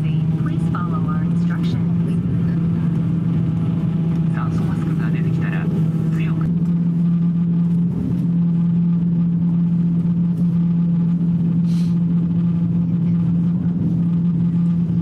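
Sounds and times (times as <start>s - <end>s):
aircraft cabin drone: 0.0s - 15.0s
steady humming tone: 0.0s - 15.0s
brief hiss: 11.7s - 12.0s.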